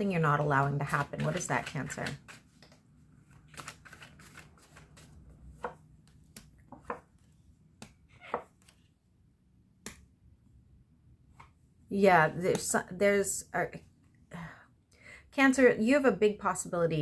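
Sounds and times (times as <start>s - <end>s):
cards being shuffled: 0.6s - 9.0s.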